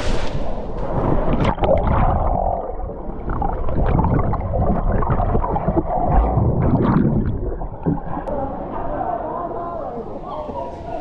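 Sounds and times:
muffled underwater water gurgling: 1.2 - 9.0
bubbling pops: 1.3 - 8.3.

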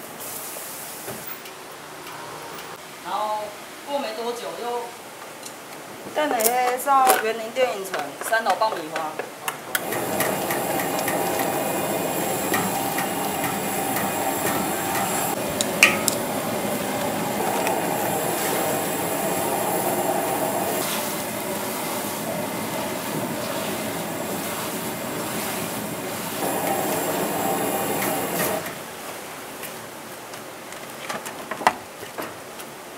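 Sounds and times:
noodles sizzling in a wok: 9.8 - 28.8.

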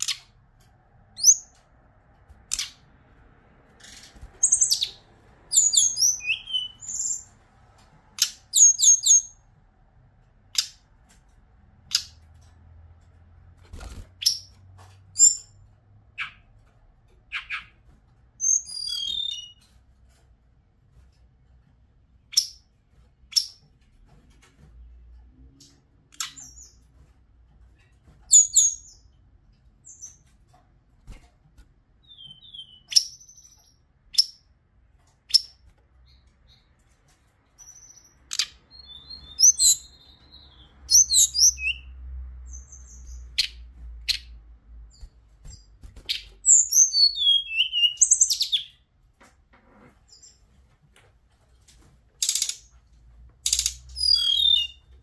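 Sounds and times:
bird calling sharp chips: 53.5 - 54.8.

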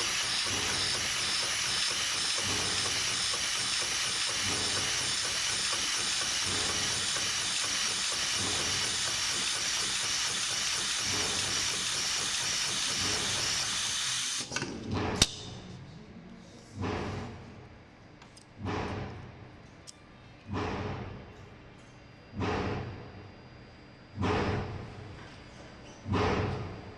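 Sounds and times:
sewing machine running: 0.0 - 14.5.

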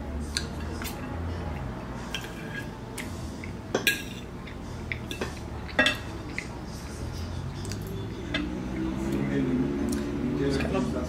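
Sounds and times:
cutlery scraping ceramic plate: 2.1 - 2.8, 3.7 - 4.3.

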